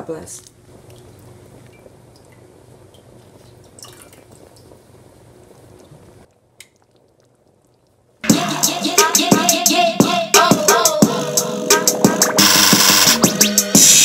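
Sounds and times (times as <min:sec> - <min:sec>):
low steady hum: 0:00.0 - 0:08.2
soup bubbling and plopping: 0:00.6 - 0:08.2.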